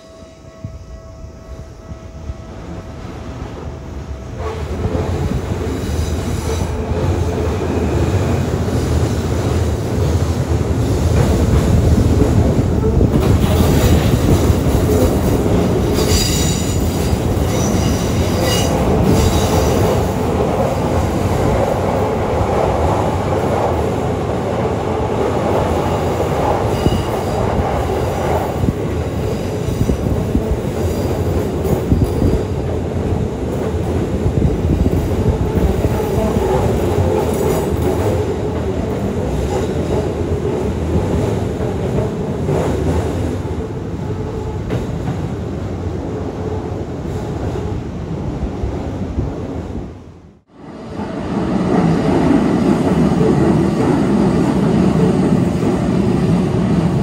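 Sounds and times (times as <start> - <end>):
train rumbling past: 0.0 - 57.0
train wheel squeal: 16.0 - 19.9, 26.6 - 27.4.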